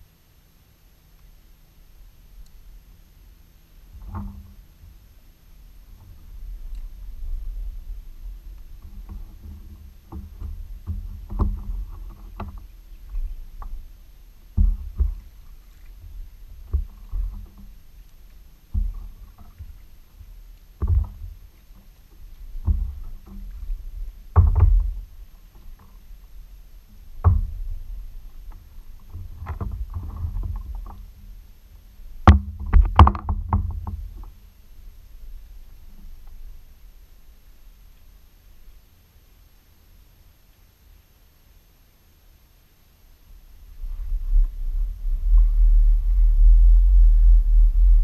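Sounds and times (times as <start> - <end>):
paddle knocking against hull: 8.7 - 13.9, 14.5 - 31.3, 32.2 - 34.4.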